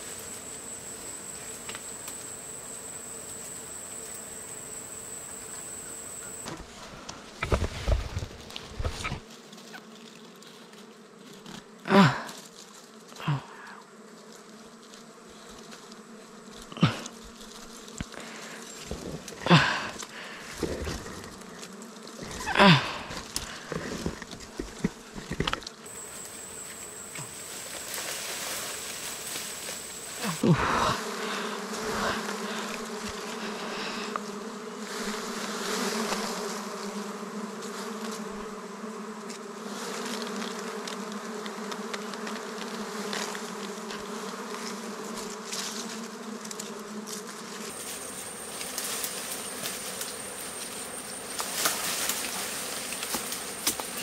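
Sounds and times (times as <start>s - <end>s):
knocks and rustles of branches: 0.0s - 11.7s, 23.1s - 30.4s, 44.5s - 54.0s
honeybees buzzing: 0.0s - 11.9s, 12.8s - 54.0s.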